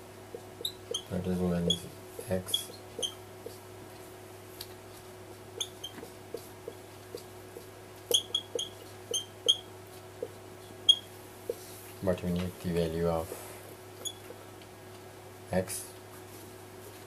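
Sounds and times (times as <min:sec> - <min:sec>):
marker squeaking on whiteboard: 0:00.6 - 0:03.6, 0:05.6 - 0:11.1, 0:14.0 - 0:14.3.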